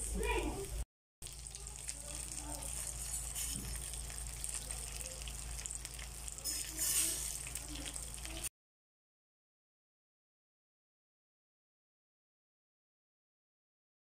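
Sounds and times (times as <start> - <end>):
fish sizzling in oil: 0.0 - 8.5.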